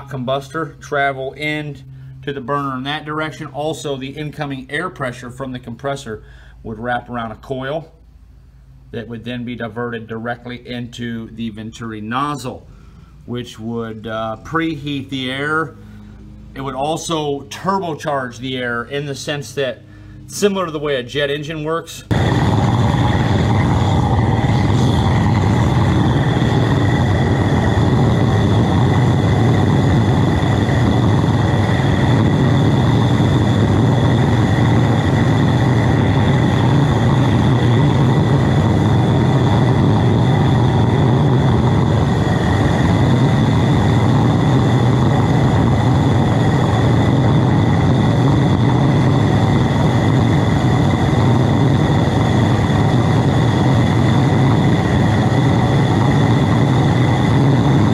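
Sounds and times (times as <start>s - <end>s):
burner flame rushing: 0.0s - 6.3s, 22.0s - 57.9s.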